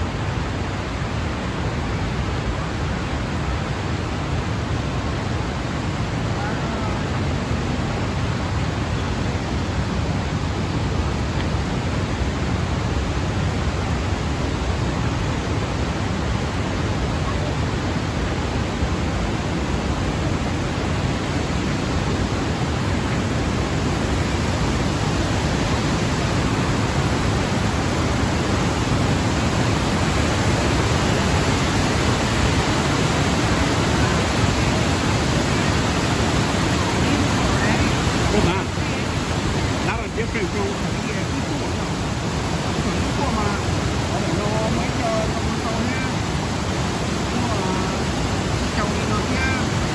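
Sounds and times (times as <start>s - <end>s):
waterfall rushing over rocks: 0.0s - 49.9s.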